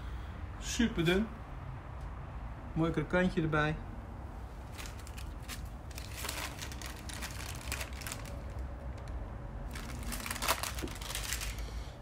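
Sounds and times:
crackling and rustling of crisp meat: 0:04.6 - 0:12.0.

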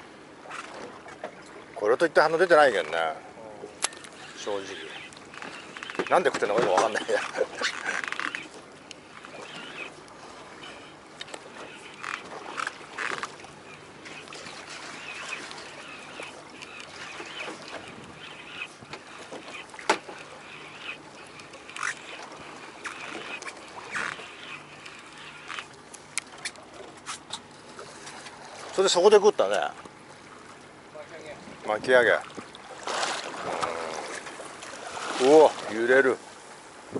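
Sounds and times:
sea water around a boat: 0:00.0 - 0:36.9
wind: 0:00.0 - 0:36.9
fishing reel cranked by hand: 0:03.8 - 0:10.0, 0:10.6 - 0:26.6.

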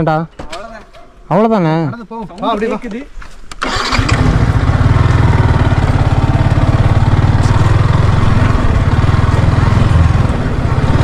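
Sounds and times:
motorcycle engine starting: 0:03.5 - 0:11.0
motorcycle engine running: 0:03.7 - 0:11.0.

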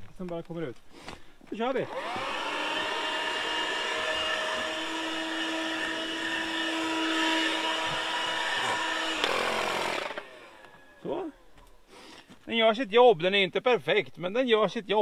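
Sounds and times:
vacuum cleaner motor whine: 0:01.8 - 0:11.2.

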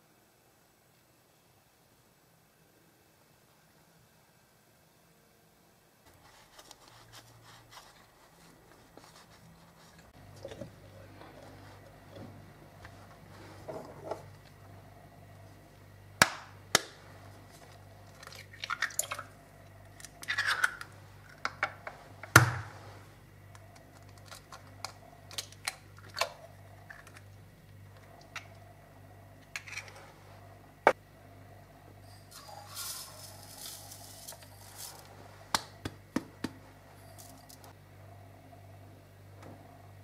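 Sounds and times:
sugar pouring hiss: 0:32.1 - 0:35.1.

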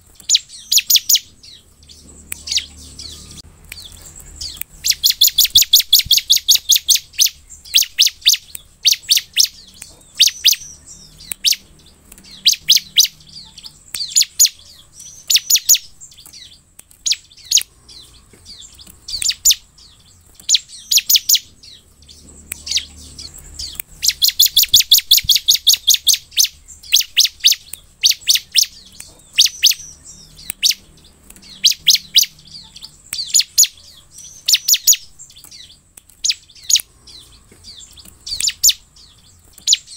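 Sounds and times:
bird rattling trills: 0:00.0 - 0:39.9.

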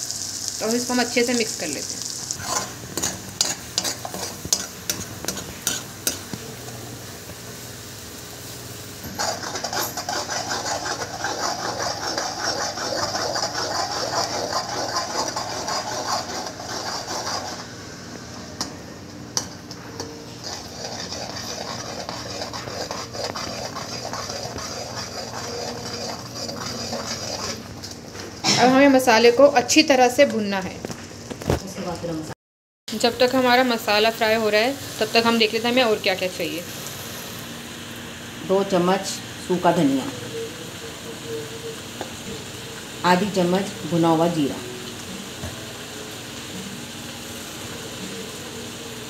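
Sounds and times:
ladle scraping sizzling masala: 0:00.0 - 0:29.3, 0:32.9 - 0:37.5.

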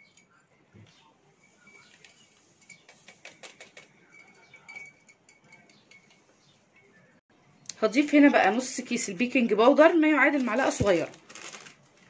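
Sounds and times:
spoon clinking against glass: 0:01.4 - 0:06.2
spoon stirring in water: 0:01.4 - 0:06.3.

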